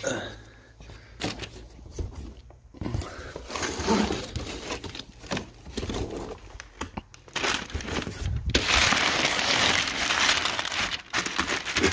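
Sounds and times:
packing paper rustling: 3.4 - 11.9.

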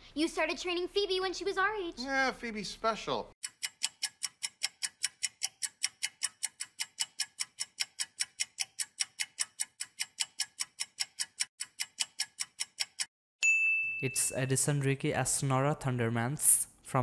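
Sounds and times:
countdown timer ticking: 3.4 - 13.1.

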